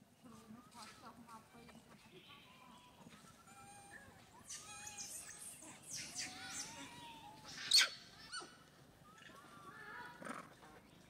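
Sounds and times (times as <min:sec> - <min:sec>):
birds chirping and whistling: 0:03.2 - 0:08.2.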